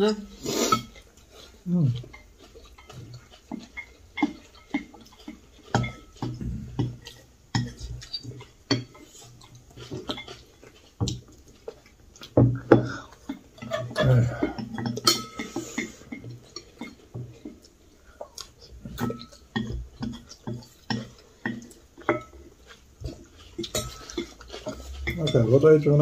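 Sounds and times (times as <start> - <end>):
cutlery clinking on ceramic dishes: 2.0 - 11.2, 13.6 - 17.5, 18.9 - 26.0.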